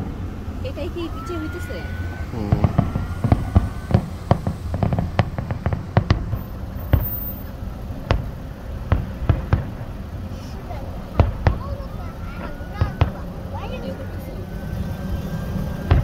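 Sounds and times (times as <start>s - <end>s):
fireworks bangs and pops: 2.5s - 10.2s, 11.0s - 11.9s, 15.8s - 16.0s.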